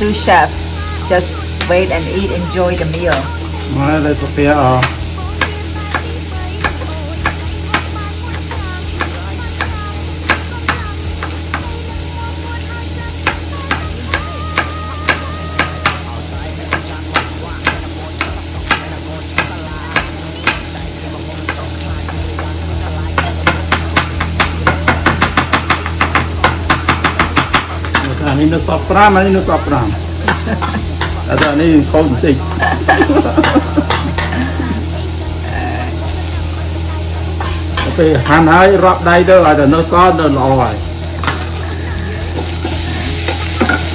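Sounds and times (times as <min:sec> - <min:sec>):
vegetables sizzling in a pan: 0:00.0 - 0:43.9
knife chopping on plastic board: 0:23.2 - 0:28.0.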